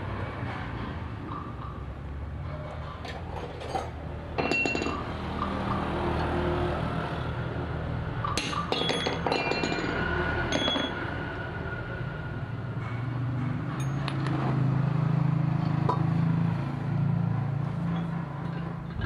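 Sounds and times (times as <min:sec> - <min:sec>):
metal tools clinking: 0:03.0 - 0:05.5, 0:08.2 - 0:11.0.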